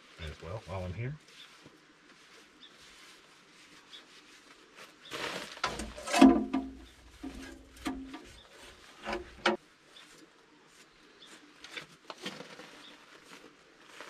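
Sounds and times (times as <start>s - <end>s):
steel panel clanging: 5.6s - 8.4s, 9.0s - 9.6s
light taps and rubbing: 5.6s - 10.2s.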